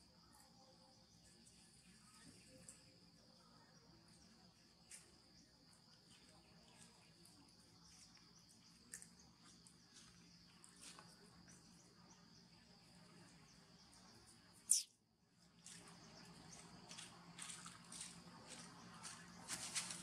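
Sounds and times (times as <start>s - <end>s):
brief high chirps: 14.7s - 14.9s.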